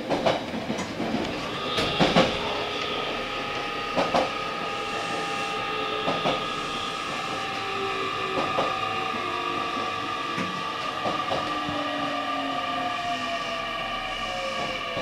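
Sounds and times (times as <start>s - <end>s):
wheels clacking on rail joints: 0.0s - 4.4s
train whine and rumble: 0.0s - 15.0s.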